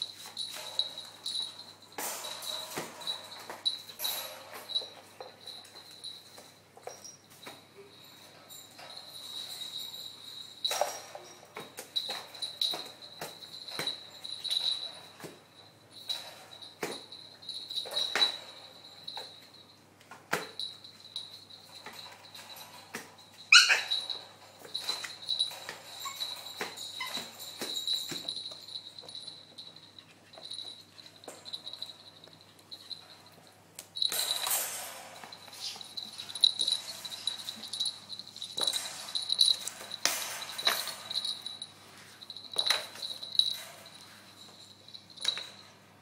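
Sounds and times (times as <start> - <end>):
puppy yipping: 23.5 - 24.1.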